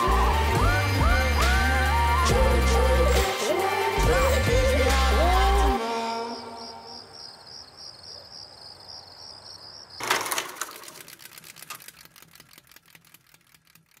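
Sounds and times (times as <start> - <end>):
high pulsing rattle: 0.0 - 5.8, 10.0 - 14.0
rapid run of clicks: 10.0 - 14.0.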